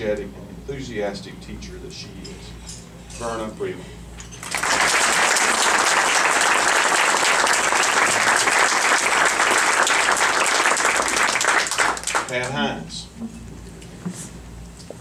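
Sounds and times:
audience applauding: 4.4s - 12.5s.

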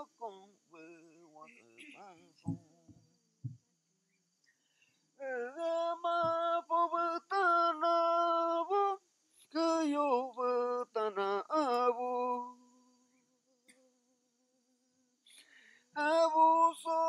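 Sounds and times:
man singing wordless melody: 0.0s - 3.0s, 5.2s - 12.8s, 15.9s - 17.0s.

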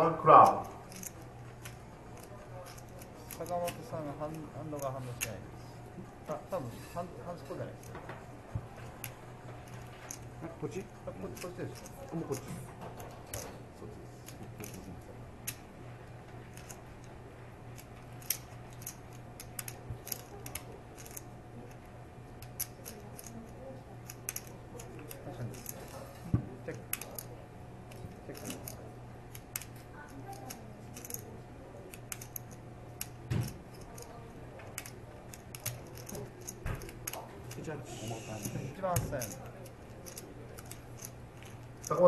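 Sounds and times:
low steady hum: 0.0s - 42.0s
poker chips clicking: 0.4s - 5.4s, 11.1s - 13.5s, 14.2s - 14.9s, 16.5s - 17.0s, 17.8s - 21.8s, 22.4s - 25.9s, 26.7s - 27.3s, 27.9s - 31.3s, 31.9s - 34.1s, 34.7s - 37.8s, 38.4s - 42.0s.

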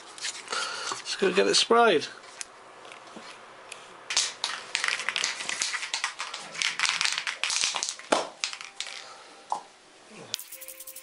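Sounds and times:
spray can rattling: 10.4s - 11.0s
spray paint hissing: 10.4s - 11.0s.

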